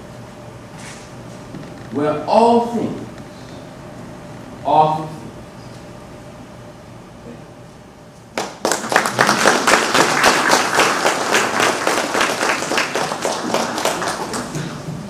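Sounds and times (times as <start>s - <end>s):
audience applauding: 8.4s - 15.0s.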